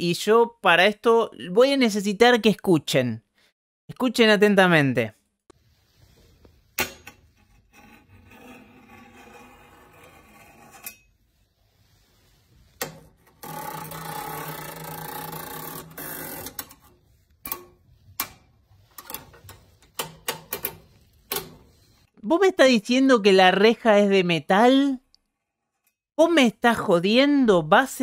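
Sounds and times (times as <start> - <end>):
pen scraping along metal bars: 7.2 - 11.4.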